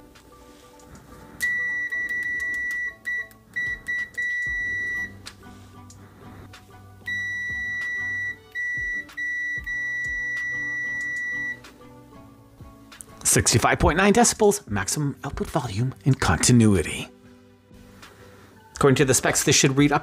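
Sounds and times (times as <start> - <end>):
multimeter continuity beep: 1.4 - 5.2, 7.1 - 11.6.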